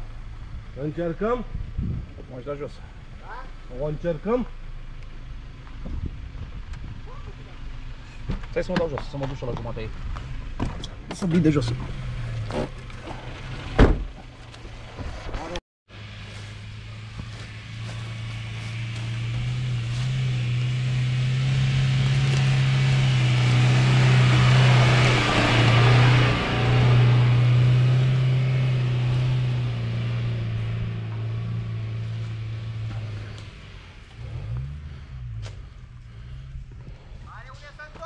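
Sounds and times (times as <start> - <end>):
car engine driving past: 14.6 - 37.3.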